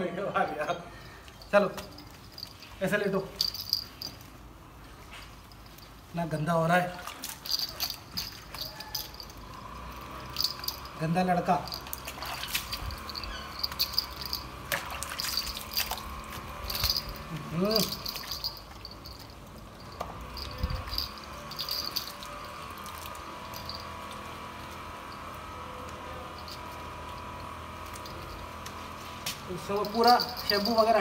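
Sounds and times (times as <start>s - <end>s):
water splashing and dripping: 6.8s - 8.8s, 11.8s - 13.1s, 14.0s - 17.3s.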